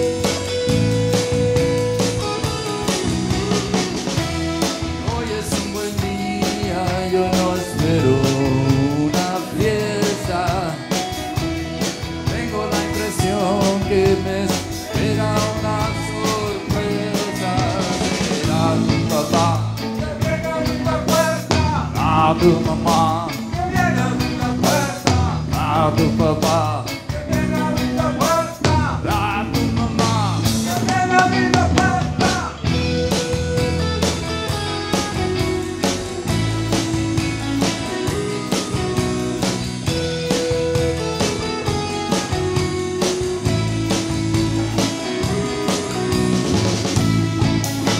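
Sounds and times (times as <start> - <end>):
bass guitar: 0.0 - 47.9
drum kit: 0.0 - 47.9
electric guitars: 0.0 - 47.9
person singing: 4.6 - 11.4, 12.1 - 39.6.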